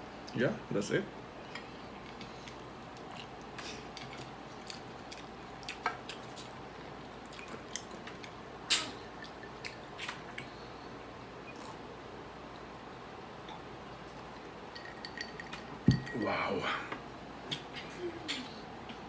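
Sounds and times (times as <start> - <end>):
wet chewing sounds: 1.6 - 10.7.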